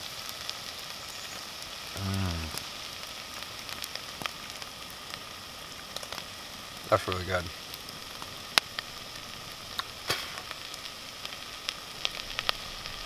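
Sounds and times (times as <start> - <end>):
campfire crackling and hissing: 0.0 - 13.0
man humming: 1.9 - 2.6.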